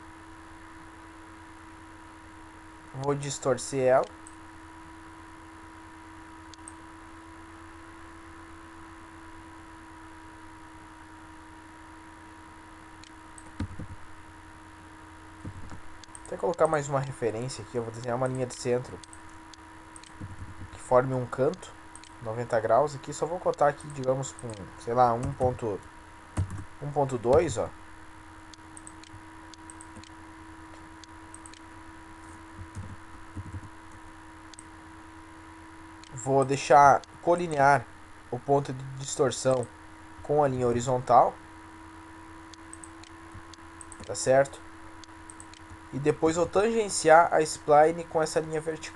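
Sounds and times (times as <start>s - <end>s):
faint electrical hum: 0.0s - 48.9s
soft low sounds: 0.0s - 48.9s
computer mouse clicks: 15.4s - 17.2s, 19.0s - 20.8s, 21.5s - 22.2s, 28.5s - 31.7s, 42.5s - 44.2s, 45.0s - 45.8s.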